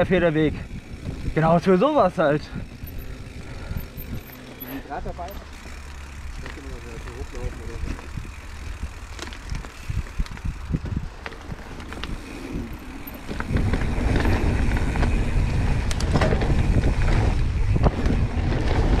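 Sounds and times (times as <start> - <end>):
wind noise on microphone: 0.0 - 1.7, 2.5 - 4.3, 7.4 - 19.0
bike rattling and clicking: 0.0 - 19.0
bike tyres rolling on dirt: 0.0 - 19.0.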